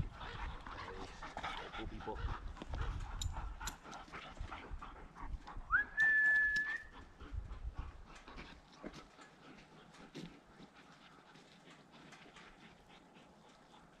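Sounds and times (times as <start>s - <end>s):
high whistle-like tone: 5.7s - 6.9s
dogs moving about: 7.0s - 14.0s.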